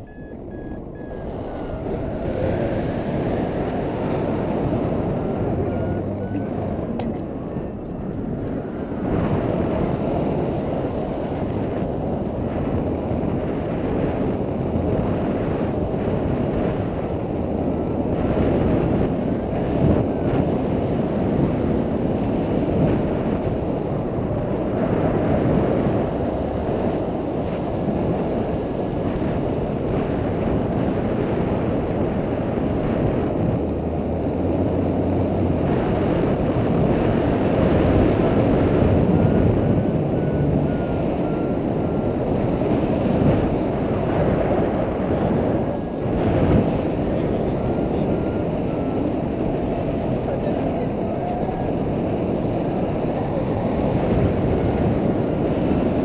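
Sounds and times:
wind on microphone: 0.0 - 56.0.

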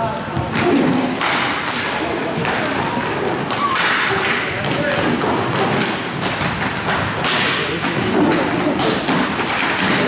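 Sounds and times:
hockey sticks and ball knocks: 0.0 - 10.0
skate wheels on floor: 0.0 - 10.0.

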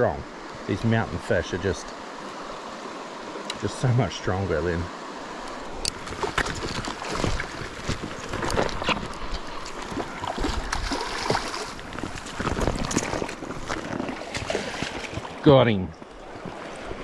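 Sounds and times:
stream rushing: 0.0 - 17.0
fish splashing in water: 6.0 - 15.4.

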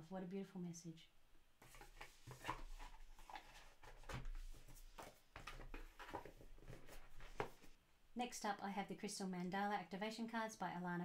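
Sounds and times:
cards tapping and sliding on table: 4.0 - 7.7.

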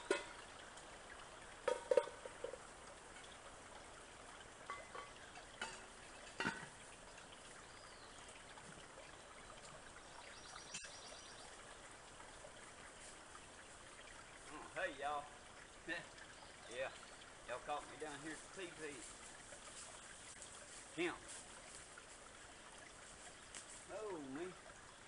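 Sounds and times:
trickle of running water: 0.0 - 25.0
knocks and clatters on ground: 1.6 - 2.6.

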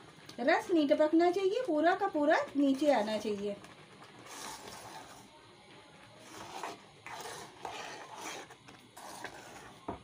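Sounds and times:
spoon stirring and scraping jam: 2.4 - 5.4, 6.0 - 10.0.

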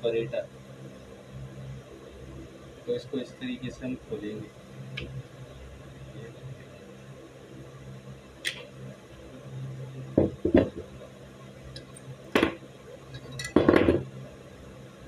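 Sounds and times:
metal parts knocking on table: 13.3 - 14.0.

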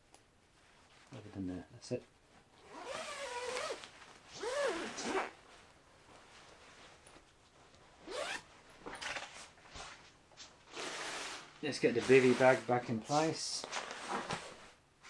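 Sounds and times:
nylon fabric rustling: 2.2 - 15.0
zipper pulls: 2.6 - 5.4, 8.0 - 9.2, 10.7 - 12.7.

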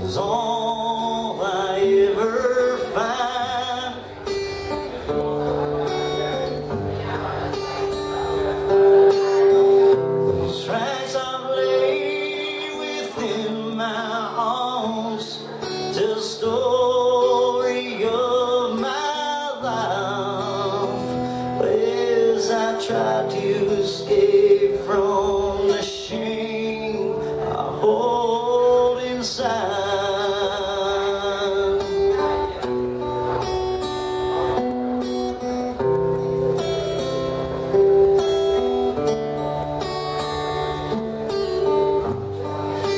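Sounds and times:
man singing into a microphone: 0.0 - 7.4, 8.7 - 32.7
acoustic guitar strumming: 0.0 - 42.9.

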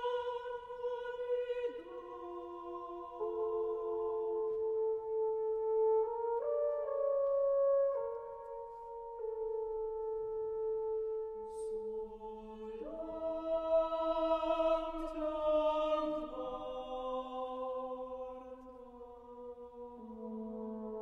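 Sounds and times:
choir singing held chords: 0.0 - 7.0, 11.4 - 21.0.

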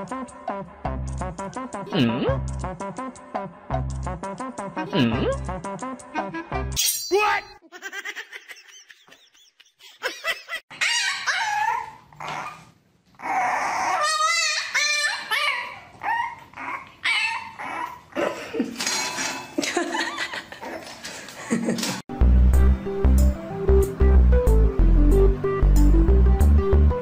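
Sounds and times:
puppies whining and yipping: 10.7 - 18.2.

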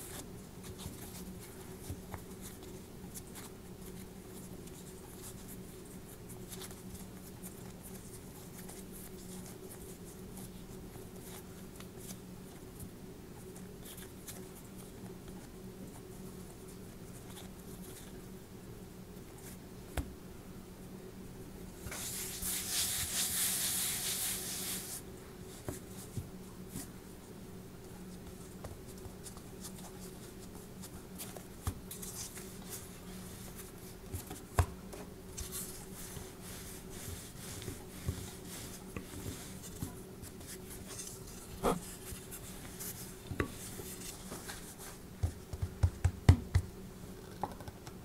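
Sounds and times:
hands sweeping flour: 21.9 - 25.7, 35.4 - 45.0
rolling pin rolling dough: 28.0 - 46.6.

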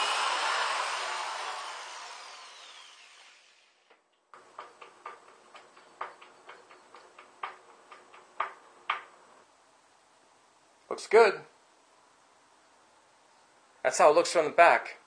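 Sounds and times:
cordless drill motor winding down: 0.0 - 3.9.

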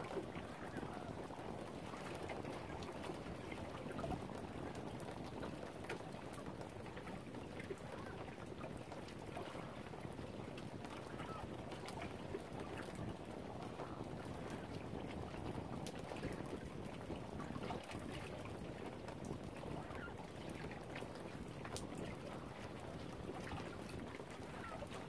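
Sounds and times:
small waves lapping on shore: 0.0 - 25.0
wind: 0.0 - 25.0
faint bird calls: 11.0 - 11.6.

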